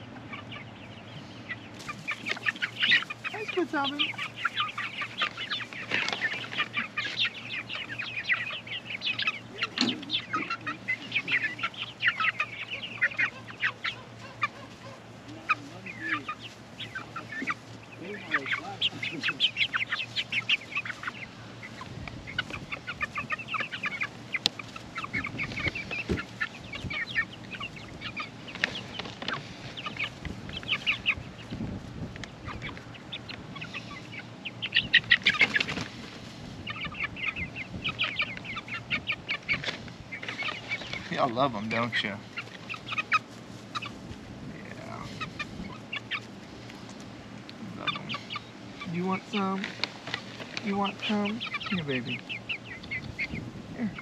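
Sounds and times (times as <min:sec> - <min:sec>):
young chickens calling: 0:00.0 - 0:54.0.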